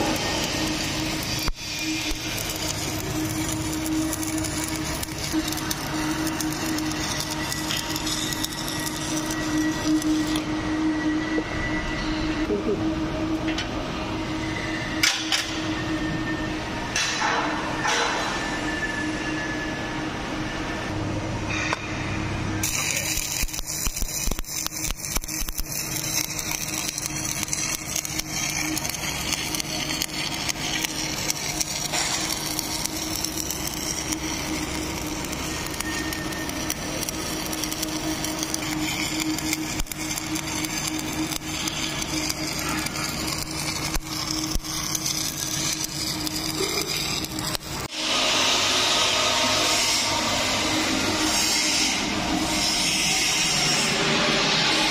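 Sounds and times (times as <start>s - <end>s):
welding arc crackling and hissing: 0.0s - 10.5s, 22.6s - 54.9s
electrical machine hum: 0.0s - 47.9s.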